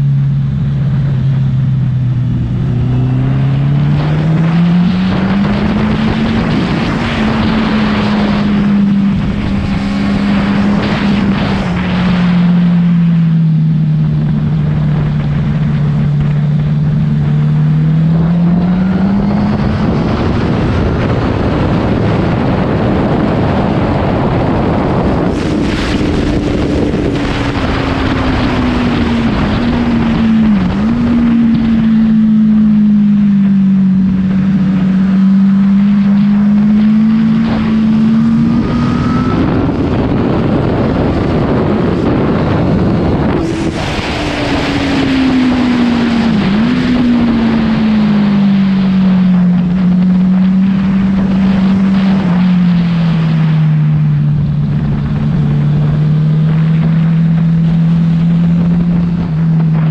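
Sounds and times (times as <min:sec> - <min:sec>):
motorcycle engine running: 0:00.0 - 0:59.9
wind rush over microphone: 0:00.0 - 0:59.9.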